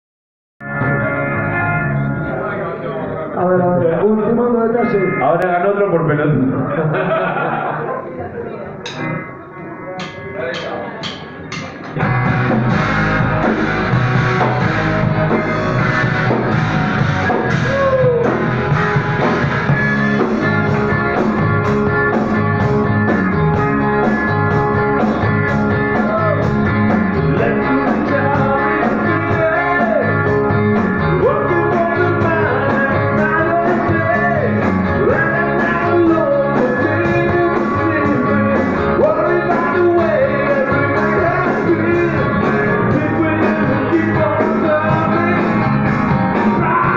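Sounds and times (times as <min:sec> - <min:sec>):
live rock band playing: 0:00.6 - 0:07.8, 0:08.6 - 0:46.9
man singing: 0:17.3 - 0:18.5, 0:25.9 - 0:26.5, 0:27.3 - 0:46.9.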